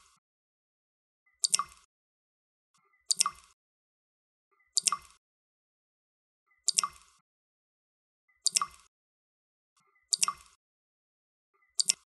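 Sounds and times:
water drops plopping: 3.1s - 3.6s, 4.8s - 5.2s, 8.5s - 8.9s, 11.8s - 12.0s.

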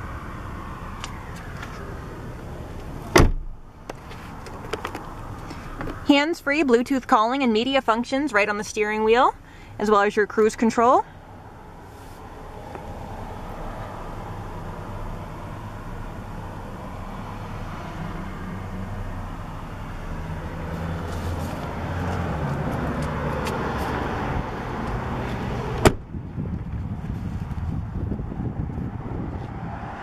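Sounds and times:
vehicle engine hum: 0.0s - 30.0s
car door slamming: 3.0s - 4.8s, 25.8s - 26.1s.

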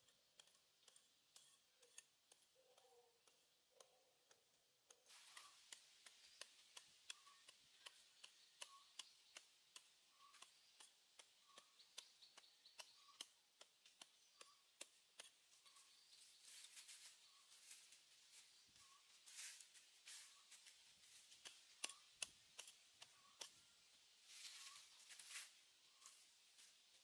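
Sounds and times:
hand hoe chopping soil: 0.0s - 16.2s, 20.4s - 23.8s.

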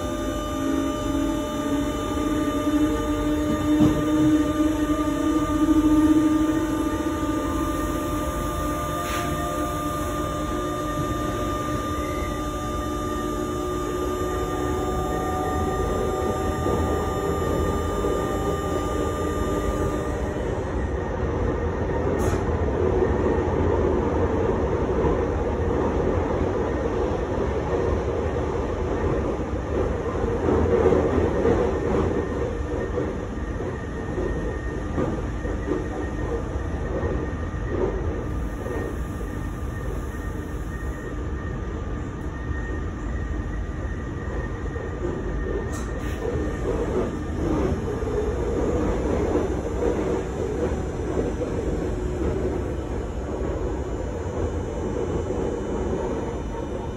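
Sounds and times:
faint high whine: 0.0s - 21.4s, 33.6s - 56.9s
train wheels rumbling and rattling: 0.0s - 56.9s.

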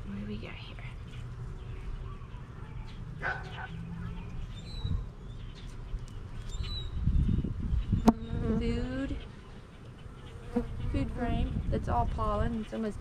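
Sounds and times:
honeybees buzzing: 7.8s - 13.0s
bee buzzing close by: 7.9s - 9.2s, 9.9s - 11.7s.

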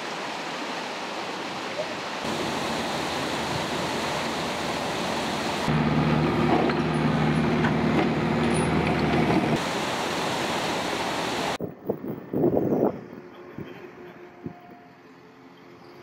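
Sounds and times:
rushing outdoor background: 0.0s - 16.0s
heavy diesel engine running: 2.3s - 11.6s.

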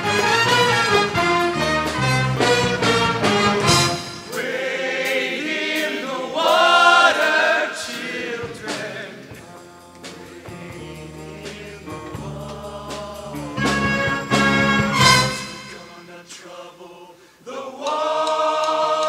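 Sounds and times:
live band playing: 0.0s - 4.4s, 8.8s - 16.0s
choir singing: 2.4s - 19.0s.

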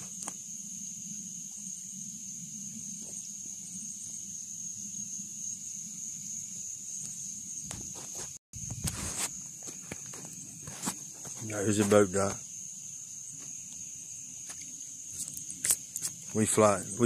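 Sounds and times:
insect chorus drone: 0.0s - 17.0s
footsteps on dirt: 7.7s - 12.0s.

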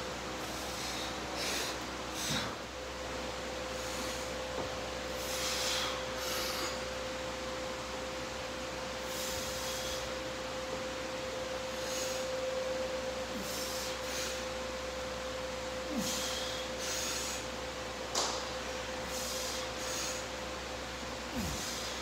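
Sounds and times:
breathy puffs of air: 0.4s - 2.8s, 3.6s - 7.0s, 8.9s - 10.4s, 11.6s - 14.8s, 15.6s - 17.6s, 18.9s - 20.6s, 21.2s - 22.0s.

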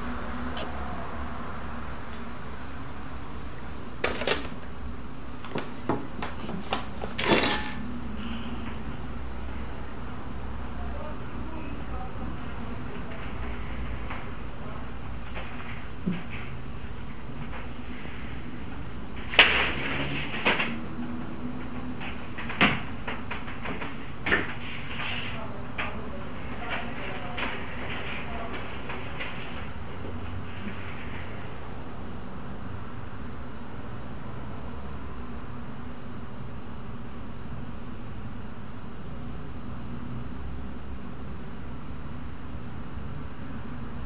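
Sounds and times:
steady low hum: 0.0s - 19.4s
metal clatter: 7.0s - 8.0s
small metal object clinking: 7.2s - 7.8s.

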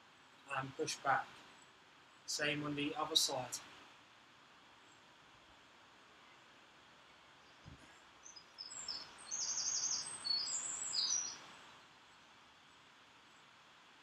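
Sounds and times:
outdoor hiss: 0.0s - 14.0s
songbird chirping: 6.1s - 13.6s.

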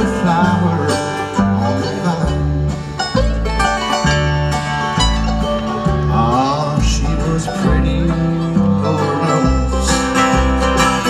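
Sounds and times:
person singing: 0.0s - 3.0s, 6.0s - 10.3s
banjo: 0.0s - 11.0s
bass line: 0.0s - 11.0s
bluegrass band through pa: 0.0s - 11.0s.

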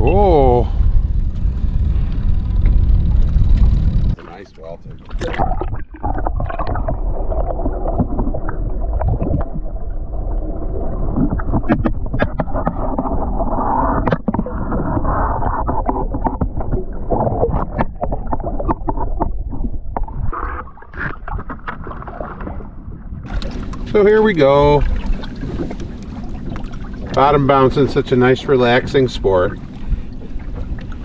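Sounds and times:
wind noise: 0.0s - 28.0s
rushing water: 23.3s - 31.0s.

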